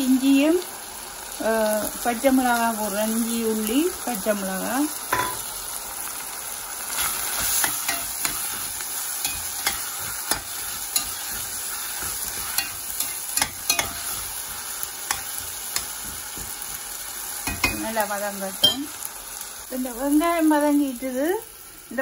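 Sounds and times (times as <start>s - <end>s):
onions sizzling in oil: 0.0s - 22.0s
spatula scraping a pot: 6.9s - 16.4s.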